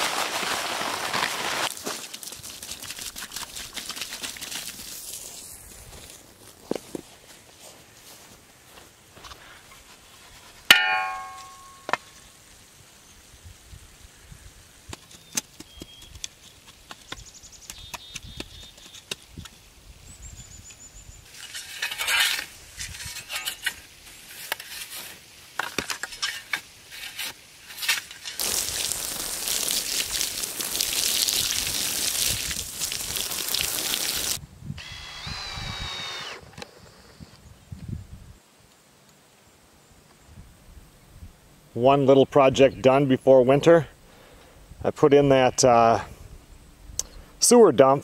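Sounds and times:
water hissing from garden hose: 0:00.0 - 0:05.9, 0:28.4 - 0:34.4
taps and scraping packing soil: 0:00.0 - 0:07.4, 0:14.8 - 0:19.7, 0:21.3 - 0:31.2
metallic clang: 0:10.7 - 0:12.1.

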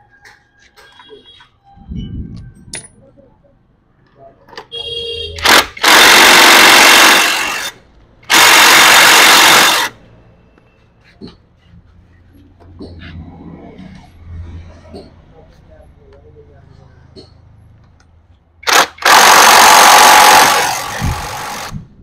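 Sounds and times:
electric impact wrench: 0:05.4 - 0:10.0, 0:18.6 - 0:21.9.

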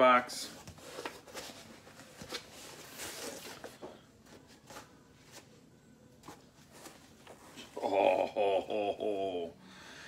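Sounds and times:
cardboard box rustling and scraping: 0:00.7 - 0:03.9.

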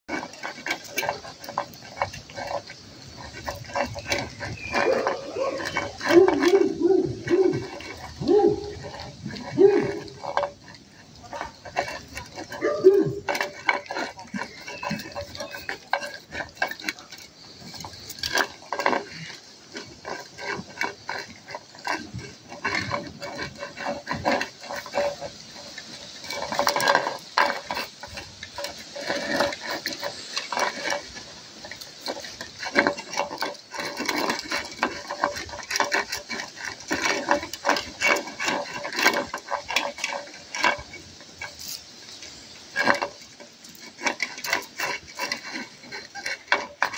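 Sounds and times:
puppies eating from plastic bowls: 0:00.1 - 0:46.9.

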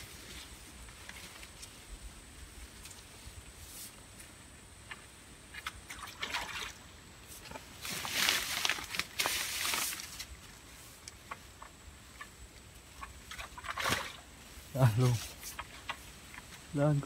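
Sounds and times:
water sloshing and splashing: 0:05.5 - 0:10.3, 0:12.2 - 0:16.1.

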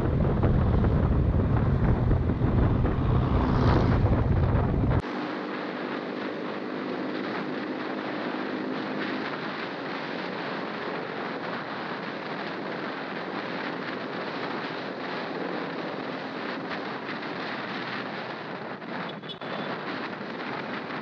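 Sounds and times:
motorcycle engine running: 0:00.0 - 0:11.6
wind buffeting microphone: 0:00.0 - 0:21.0.

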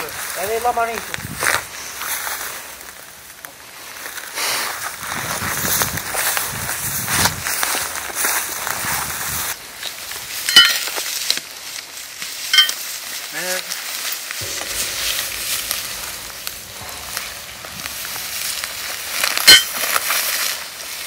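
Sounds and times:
dry grass and leaves rustling: 0:00.0 - 0:21.0
sharp clinks: 0:10.5 - 0:10.9, 0:12.6 - 0:12.8, 0:14.4 - 0:20.0.

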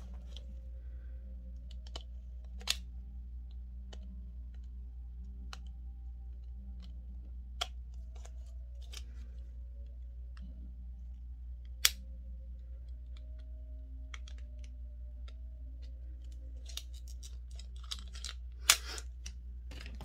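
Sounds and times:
steady low hum: 0:00.0 - 0:20.0
packaging clicks and crackles: 0:12.8 - 0:20.0.

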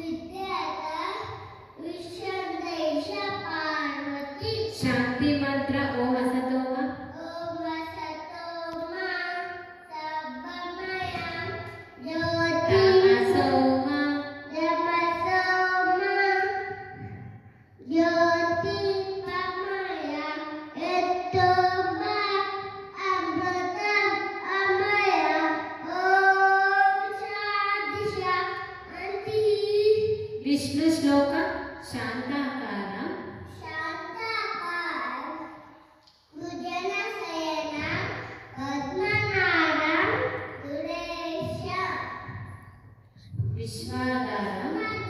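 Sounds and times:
boy chanting into a microphone: 0:00.6 - 0:32.4, 0:43.2 - 0:45.0.

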